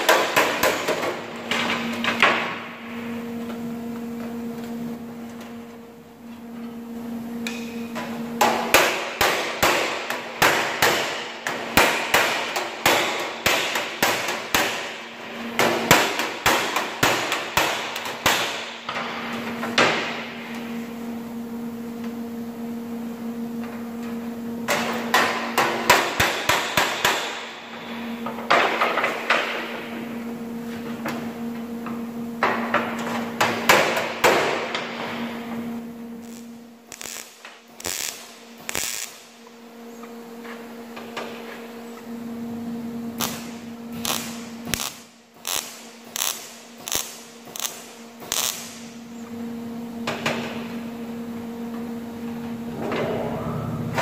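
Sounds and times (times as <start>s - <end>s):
steady hum: 0.0s - 54.0s.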